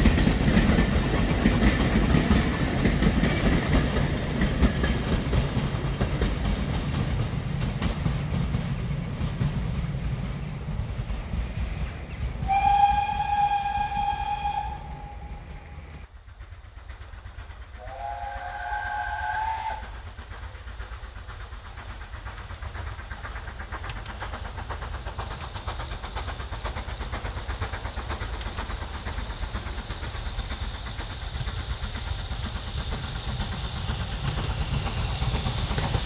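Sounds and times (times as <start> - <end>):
steam locomotive exhaust beat: 0.0 - 36.0
lower multi-tone whistle: 12.4 - 16.0, 17.8 - 20.0
steam locomotive whistle: 12.4 - 16.0, 17.8 - 20.0.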